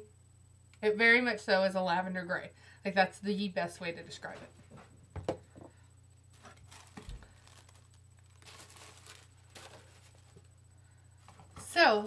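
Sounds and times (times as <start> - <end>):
low electrical hum: 0.0 - 12.0
faint rustles of small items: 4.2 - 12.0.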